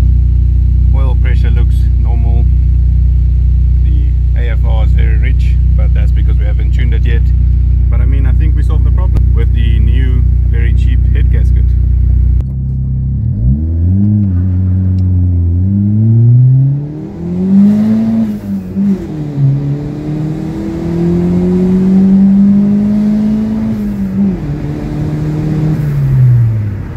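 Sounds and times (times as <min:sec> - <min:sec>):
car engine accelerating: 0:00.0 - 0:26.9.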